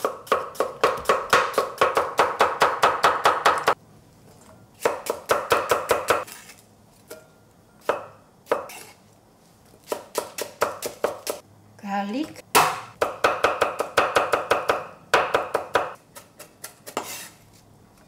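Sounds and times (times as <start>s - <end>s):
knife chopping on wooden board: 0.0s - 3.8s, 9.8s - 11.4s, 12.6s - 17.3s.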